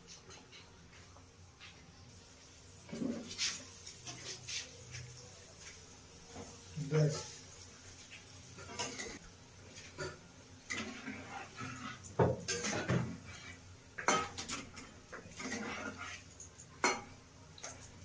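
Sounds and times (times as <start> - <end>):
oil sizzling: 0.0 - 18.0
metal spatula scraping a pan: 2.9 - 5.0, 8.4 - 9.2, 9.8 - 17.8.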